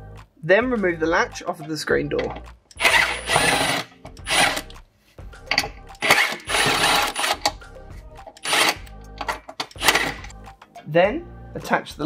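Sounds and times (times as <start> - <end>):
cordless drill whirring: 2.8 - 4.6, 6.0 - 7.4, 8.4 - 8.8.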